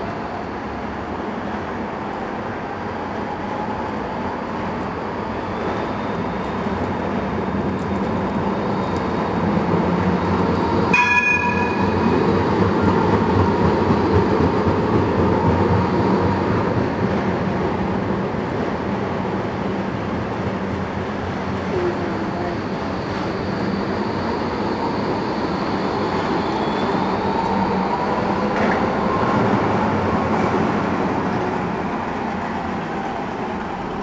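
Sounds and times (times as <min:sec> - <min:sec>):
tram rolling on rails: 0:00.0 - 0:34.0
short ringing tone: 0:10.9 - 0:12.4.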